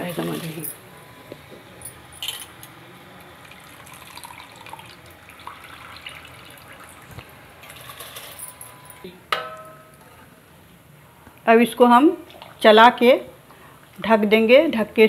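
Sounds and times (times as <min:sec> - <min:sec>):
water boiling and bubbling: 0:03.0 - 0:08.2, 0:12.2 - 0:12.7.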